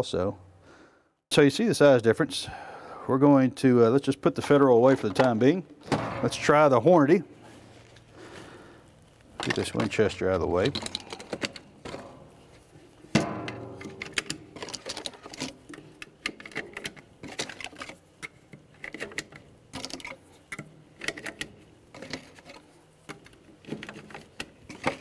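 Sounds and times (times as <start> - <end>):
shotgun shells clicking into magazine: 10.6 - 11.7, 13.8 - 20.2.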